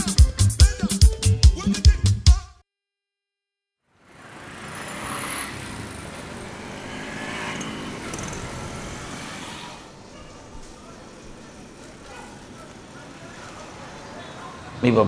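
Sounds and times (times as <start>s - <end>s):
music: 0.0s - 2.6s
street traffic: 3.9s - 15.0s.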